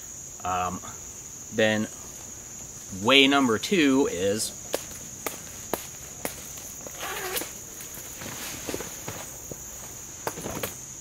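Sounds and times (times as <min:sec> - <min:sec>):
insect chorus buzzing: 0:00.0 - 0:11.0
fabric rustling: 0:04.7 - 0:10.8.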